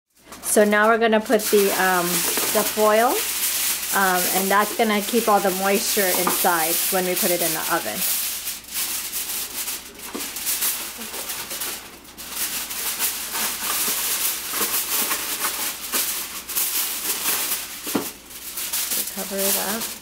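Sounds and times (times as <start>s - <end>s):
aluminium foil crinkling: 0.1s - 20.0s.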